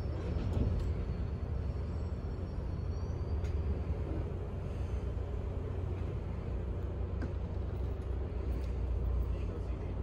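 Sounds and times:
train low rumble: 0.0 - 10.0.

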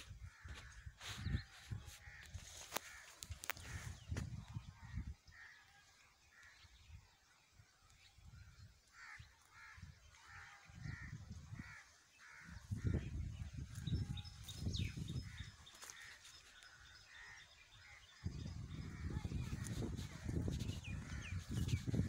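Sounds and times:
wind rumbling on microphone: 0.0 - 2.6, 3.2 - 5.4, 9.6 - 11.8, 12.4 - 15.7, 16.7 - 22.0
crow cawing: 8.9 - 13.0.

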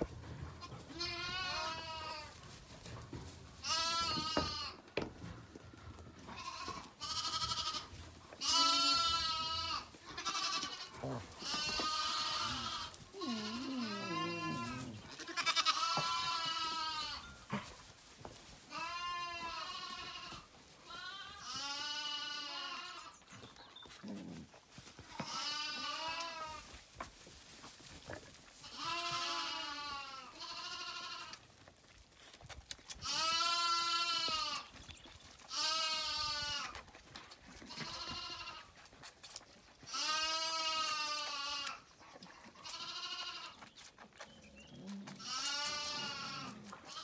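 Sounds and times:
lambs bleating: 0.6 - 2.4, 3.6 - 4.8, 6.2 - 17.7, 18.7 - 23.2, 25.1 - 26.7, 28.6 - 31.5, 33.0 - 34.7, 35.5 - 36.8, 37.6 - 38.8, 39.8 - 41.8, 42.4 - 43.7, 44.8 - 47.0.

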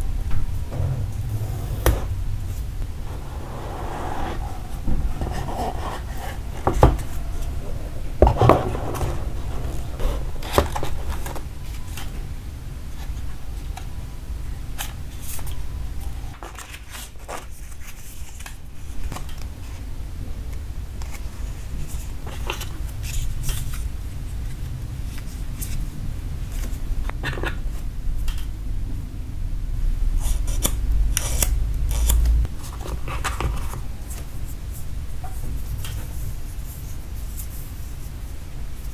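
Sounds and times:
low handling rumble: 0.0 - 11.6.

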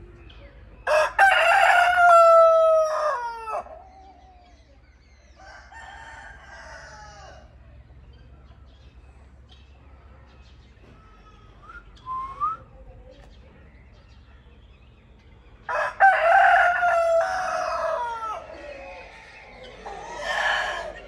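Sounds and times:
rooster crowing: 0.9 - 3.8, 5.4 - 7.5, 15.7 - 21.0.

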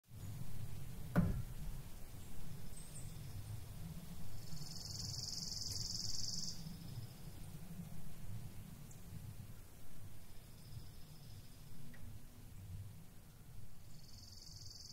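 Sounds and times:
deep thump with falling pitch: 1.1 - 1.6
high insect buzz: 4.6 - 6.7.

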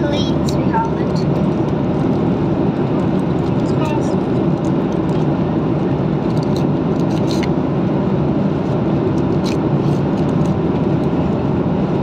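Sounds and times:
aircraft cabin engine drone: 0.0 - 12.0.

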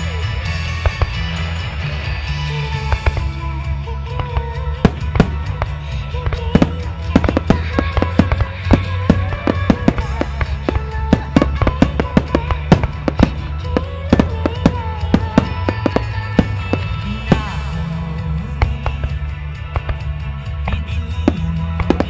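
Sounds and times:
music with sustained melody: 0.0 - 22.0
fireworks bursting: 4.0 - 18.0, 21.3 - 22.0.

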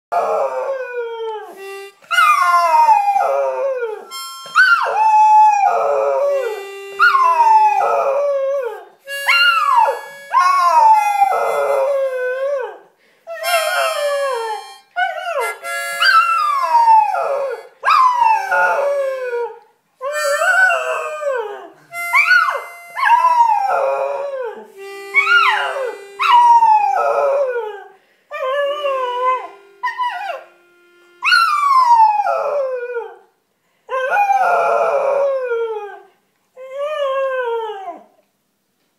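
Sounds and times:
harmonica notes: 1.5 - 8.2, 9.0 - 12.4, 13.3 - 19.3, 20.0 - 27.6, 28.4 - 32.5
dog howling: 13.4 - 30.5, 31.2 - 33.2.

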